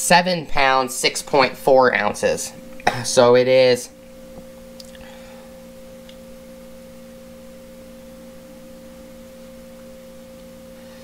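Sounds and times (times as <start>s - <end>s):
steady tonal hum: 0.0s - 11.0s.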